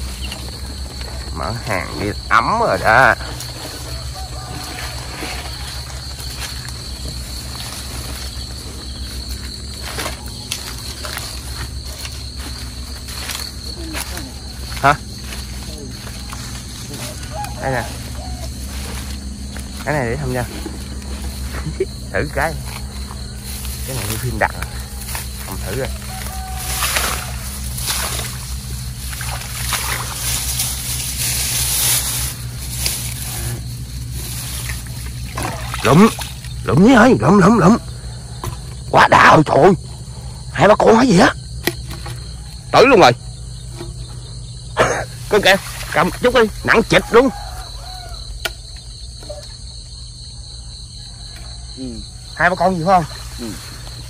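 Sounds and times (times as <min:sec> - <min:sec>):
low pulsing hum: 0:00.0 - 0:52.4
crickets chirring: 0:00.0 - 0:54.0
water sloshing and splashing: 0:02.5 - 0:37.1, 0:45.0 - 0:47.2.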